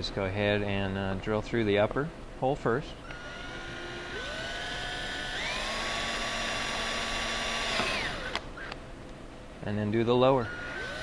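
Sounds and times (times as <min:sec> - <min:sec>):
cordless drill drilling plastic: 0:03.1 - 0:08.4, 0:10.4 - 0:11.0.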